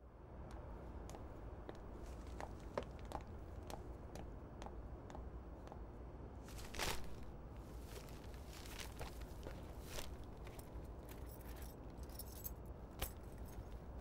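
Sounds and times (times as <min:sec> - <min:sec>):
footsteps walking: 0:00.5 - 0:05.8, 0:06.5 - 0:12.4
shopping bags and wrapping rustling: 0:06.5 - 0:12.5.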